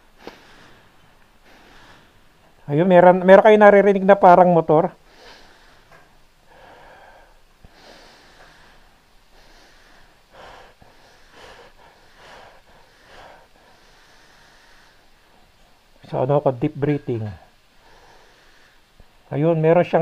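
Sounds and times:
deep breathing through a mask: 0:00.1 - 0:02.4, 0:05.0 - 0:15.8, 0:17.5 - 0:19.2.

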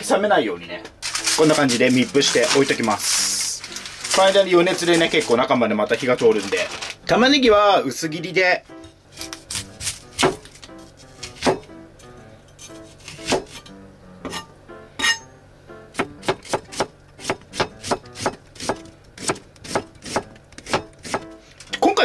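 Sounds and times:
knife slicing onion on board: 0:09.2 - 0:11.7, 0:12.5 - 0:15.2, 0:16.0 - 0:21.4.

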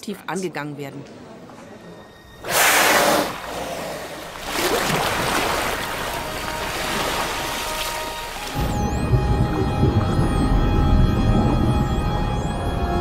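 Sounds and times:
water rushing and splashing: 0:03.2 - 0:13.0.

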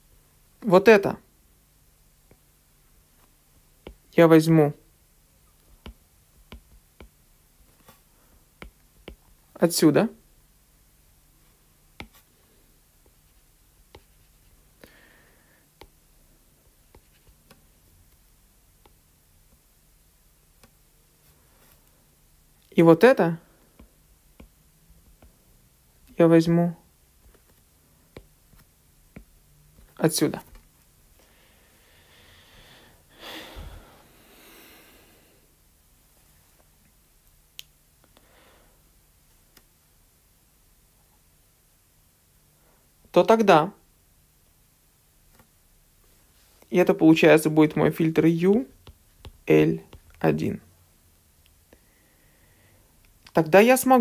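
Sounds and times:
stylus tapping on drawing tablet: 0:03.8 - 0:04.1, 0:05.8 - 0:07.2, 0:08.6 - 0:09.4, 0:11.9 - 0:12.2, 0:23.8 - 0:25.4, 0:48.8 - 0:50.2
person sniffing breath: 0:14.8 - 0:15.7, 0:31.2 - 0:35.5, 0:51.8 - 0:53.0
soft breath out: 0:14.8 - 0:15.7, 0:31.2 - 0:35.5, 0:51.7 - 0:53.0.

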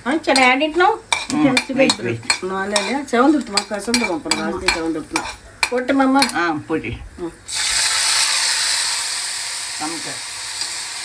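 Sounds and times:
spices sizzling in oil: 0:00.0 - 0:11.0
metal ladle scraping pan: 0:00.3 - 0:06.5.

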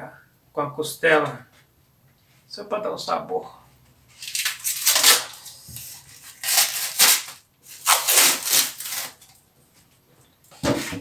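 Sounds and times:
food packaging rustling: 0:04.1 - 0:10.0.

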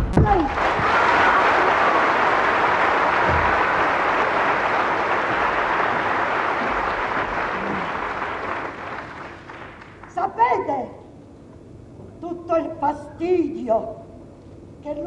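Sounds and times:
audience applauding: 0:00.3 - 0:10.2.

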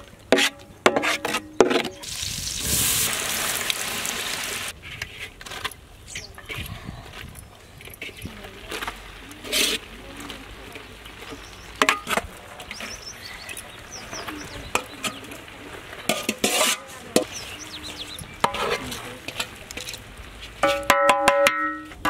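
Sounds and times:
birds chirping: 0:05.9 - 0:20.6
metal spoon scraping pot: 0:09.4 - 0:09.9, 0:16.1 - 0:17.6, 0:18.2 - 0:20.0.

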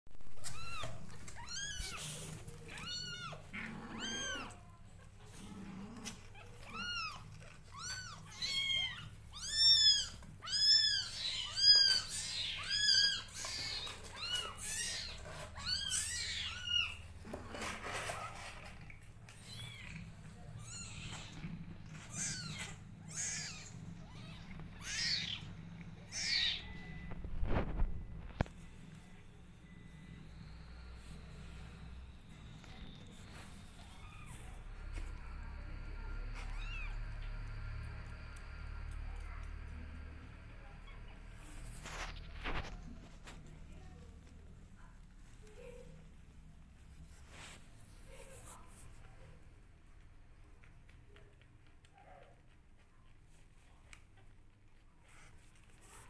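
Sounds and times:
kittens mewing: 0:00.2 - 0:17.2, 0:18.7 - 0:27.8.

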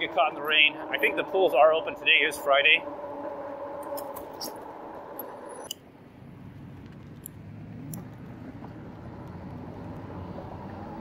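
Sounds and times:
electric bike motor whining: 0:00.0 - 0:05.7
low rumble: 0:00.0 - 0:09.7.

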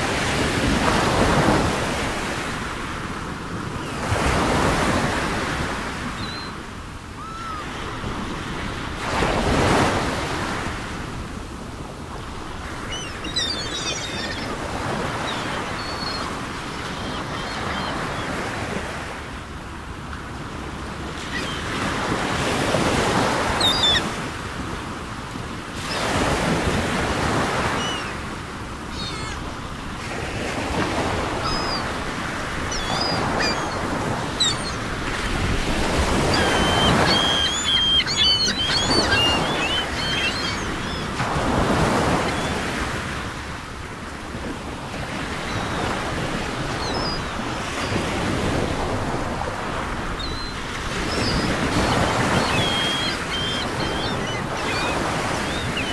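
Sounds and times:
ocean waves washing in: 0:00.0 - 0:55.9
faint bird chirps: 0:12.8 - 0:14.5, 0:23.6 - 0:24.1, 0:36.2 - 0:41.1, 0:50.2 - 0:55.9.

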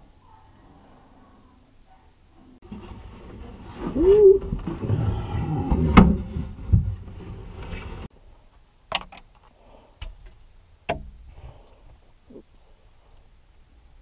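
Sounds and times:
heavy thumps and rustling: 0:02.6 - 0:08.1.

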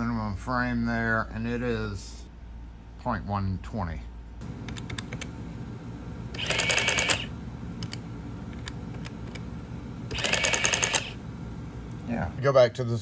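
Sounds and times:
print mechanism chattering: 0:06.4 - 0:07.3, 0:10.1 - 0:11.2
calculator keys clicking: 0:06.4 - 0:08.0, 0:10.1 - 0:11.1.

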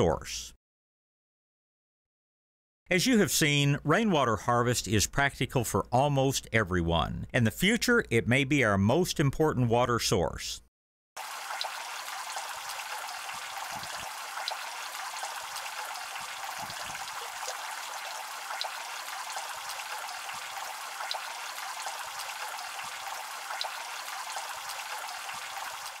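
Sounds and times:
drops splashing: 0:11.2 - 0:26.0
heavy rain onto water: 0:11.2 - 0:26.0.

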